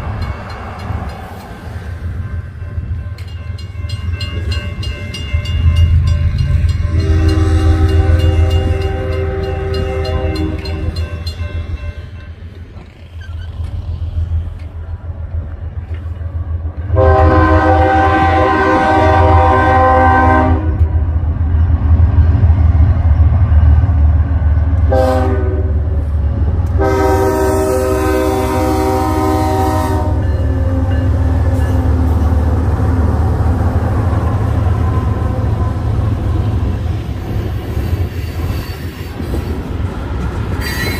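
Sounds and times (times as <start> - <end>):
train rumbling past: 0.0 - 40.9
locomotive horn chord: 6.6 - 11.0, 16.9 - 21.0, 24.8 - 26.0, 26.7 - 33.0, 34.0 - 36.8.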